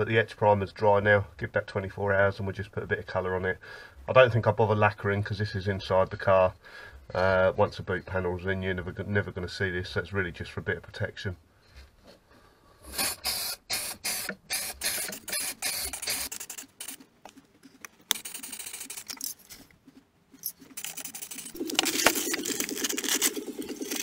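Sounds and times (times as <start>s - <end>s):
spray can mixing ball rattling: 13.0s - 19.6s, 20.4s - 24.0s.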